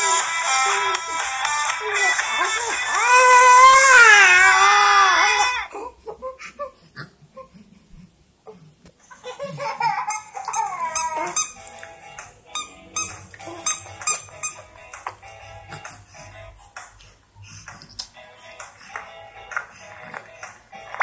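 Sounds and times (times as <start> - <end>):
cartoon music from phone speaker: 0.0 - 3.8, 10.5 - 16.4
wavering crying voice: 0.0 - 7.6, 9.2 - 11.6.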